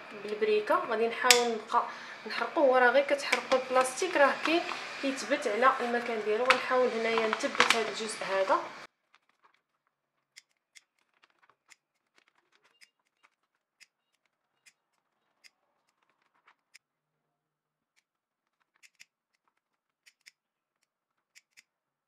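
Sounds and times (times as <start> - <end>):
small plastic clicks and ticks: 9.1 - 16.8, 17.9 - 21.7.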